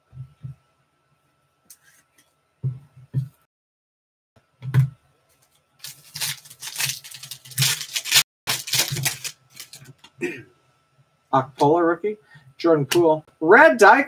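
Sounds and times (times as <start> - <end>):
foil wrapper tearing and crackling: 5.8 - 10.0.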